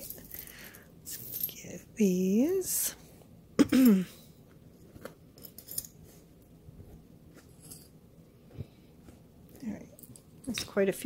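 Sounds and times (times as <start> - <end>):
metal jewelry clinking: 0.0 - 2.8, 4.8 - 6.3, 7.4 - 8.0.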